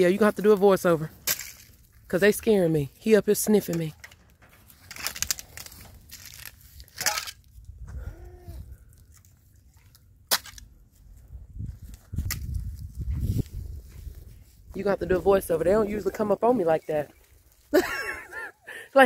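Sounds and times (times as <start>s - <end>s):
crunching and rustling in dry grass: 4.6s - 7.8s, 10.4s - 18.4s.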